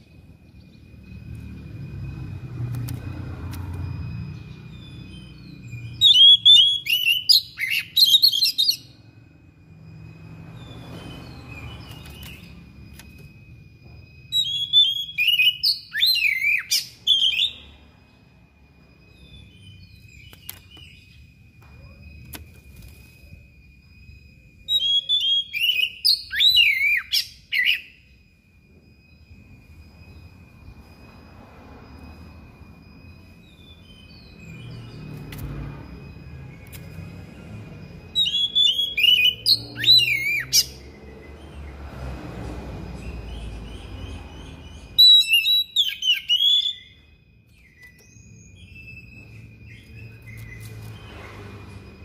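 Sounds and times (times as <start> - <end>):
faint steady high tone: 0.0 - 41.4
bird singing whistles and trills: 0.0 - 41.9, 42.7 - 52.0.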